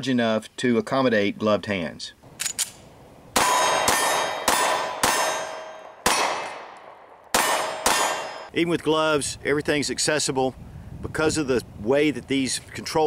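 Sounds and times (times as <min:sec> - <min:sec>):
pistol shots: 0:02.3 - 0:08.5
metallic ringing: 0:03.4 - 0:06.5, 0:07.4 - 0:08.5.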